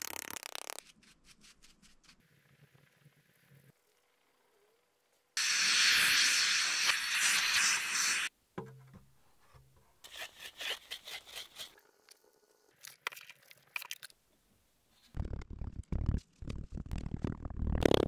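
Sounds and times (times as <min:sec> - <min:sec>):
compressed air hissing: 0:05.4 - 0:08.3.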